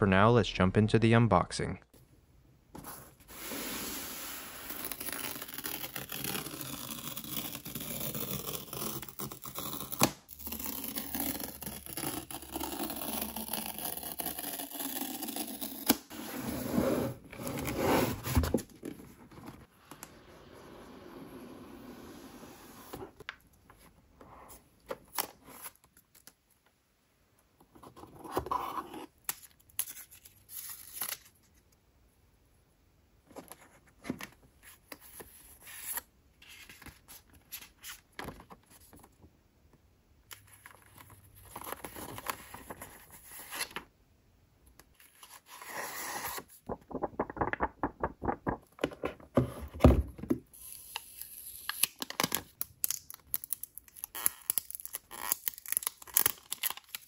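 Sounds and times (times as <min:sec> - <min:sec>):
paper wrapping rustling and tearing: 0:04.4 - 0:15.9, 0:29.4 - 0:31.4, 0:45.0 - 0:48.8, 0:50.6 - 0:57.0
plastic film peeling: 0:51.0 - 0:57.0.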